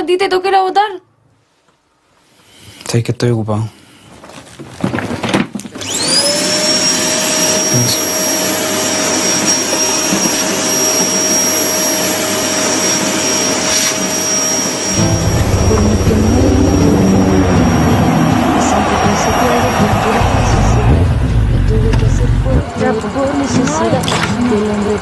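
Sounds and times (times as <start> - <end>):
appliance motor whining: 5.6 - 25.0
deep motor rumble: 14.9 - 22.8.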